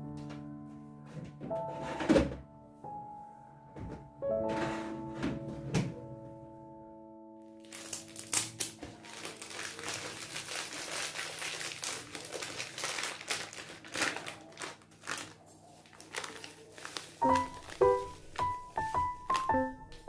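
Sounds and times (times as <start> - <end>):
piano music: 0.0 - 11.5, 16.9 - 20.0
plastic pouch crinkling: 7.6 - 20.0.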